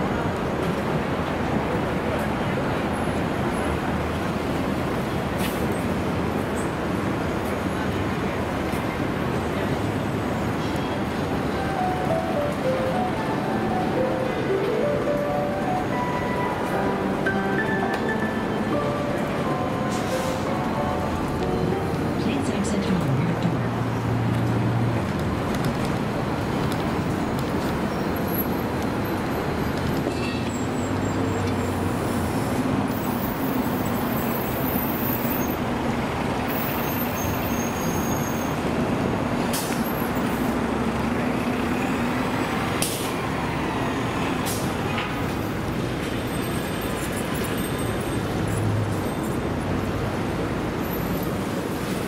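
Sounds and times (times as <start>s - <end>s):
heavy engines droning: 0.0s - 52.0s
passing vehicles: 0.0s - 52.0s.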